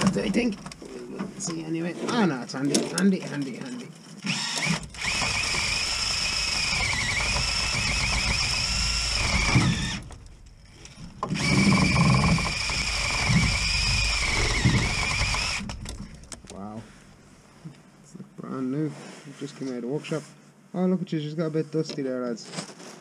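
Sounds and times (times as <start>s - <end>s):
drill with wire brush whining: 4.2s - 16.0s.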